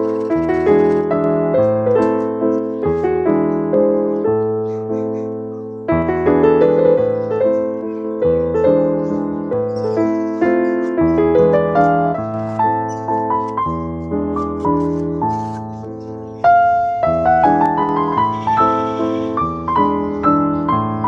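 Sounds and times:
slow piano music: 0:00.0 - 0:21.0.

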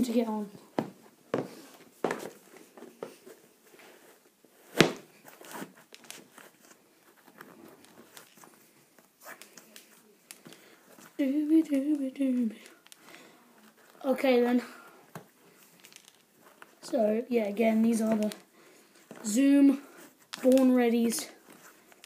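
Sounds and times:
shoe rustling and scuffing: 0:00.8 - 0:09.4
shoe laces pulled: 0:04.7 - 0:11.1.

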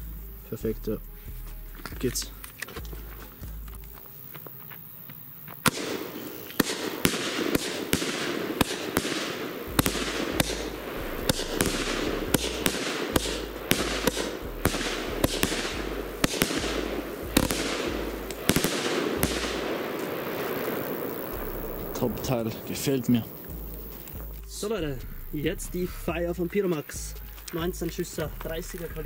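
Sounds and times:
firework bangs: 0:05.6 - 0:24.4.

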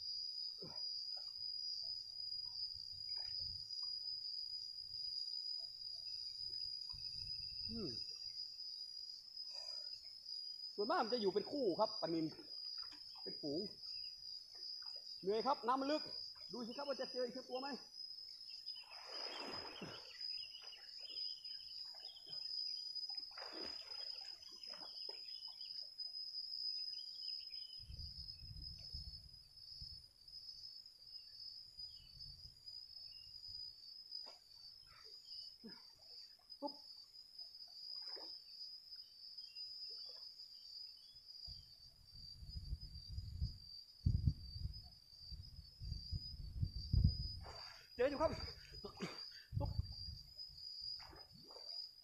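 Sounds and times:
high insect drone: 0:00.0 - 0:52.0
water splashing from swimming: 0:23.2 - 0:24.9.

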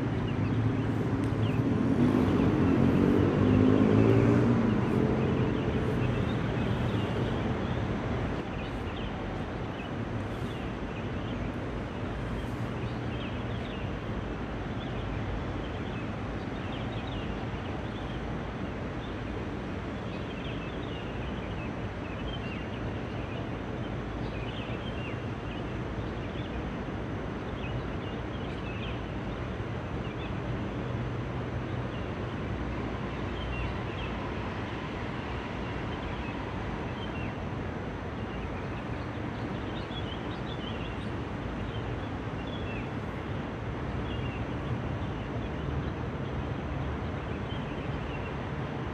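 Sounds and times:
distant traffic hum: 0:00.0 - 0:48.9
passing vehicle: 0:00.6 - 0:08.4.

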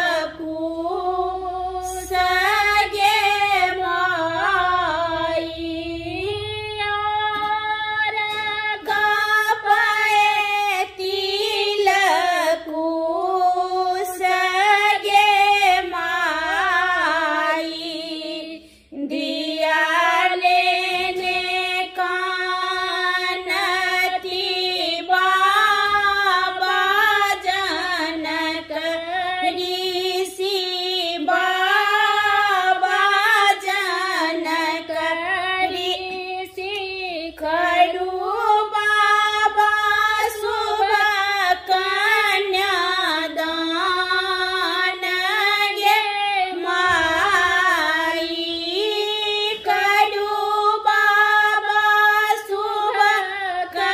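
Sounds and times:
two women singing unaccompanied: 0:00.0 - 0:53.9.

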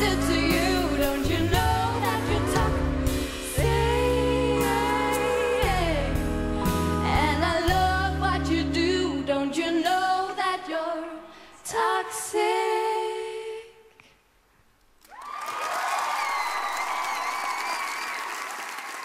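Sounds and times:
women singing in harmony: 0:00.0 - 0:14.0
audience applause: 0:15.0 - 0:19.0.

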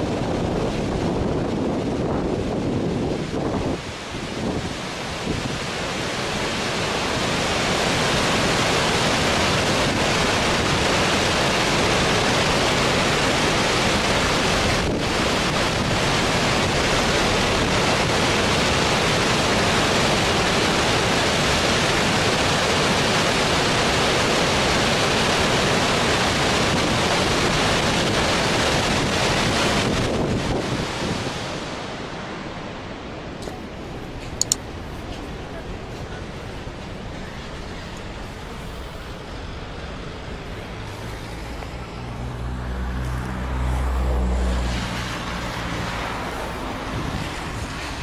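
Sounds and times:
wind buffeting microphone: 0:00.0 - 0:05.8, 0:26.6 - 0:48.0
fast-flowing floodwater rushing: 0:00.0 - 0:48.0.

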